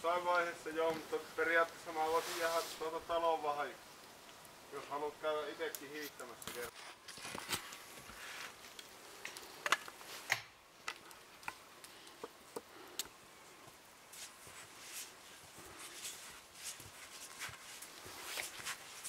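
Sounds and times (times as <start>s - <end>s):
footsteps in snow: 1.9s - 3.0s, 14.1s - 19.0s.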